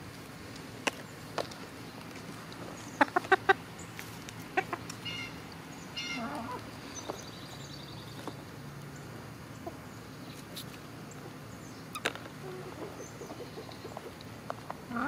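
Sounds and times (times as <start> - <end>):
hens clucking: 2.6 - 3.7, 4.4 - 6.7, 12.0 - 15.0.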